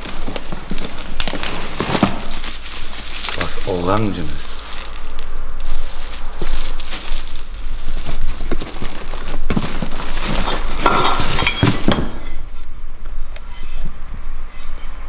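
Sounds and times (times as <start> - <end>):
plastic packaging rustling: 0.0 - 12.4
metal parts clinking: 10.8 - 12.4.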